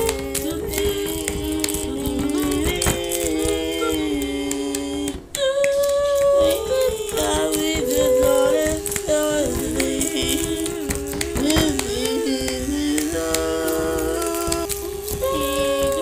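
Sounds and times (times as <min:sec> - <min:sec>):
voices singing a cappella: 0:00.0 - 0:16.0.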